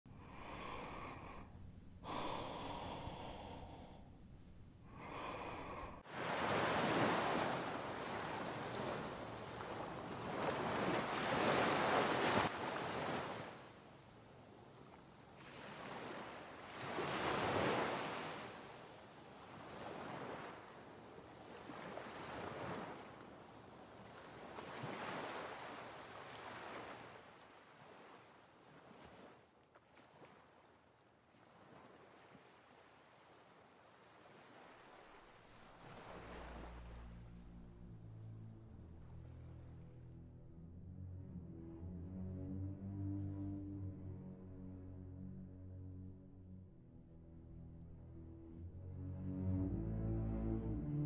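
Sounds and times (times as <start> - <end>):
heavy gasping breaths: 0.1 - 6.1
waves breaking on beach: 4.9 - 37.6.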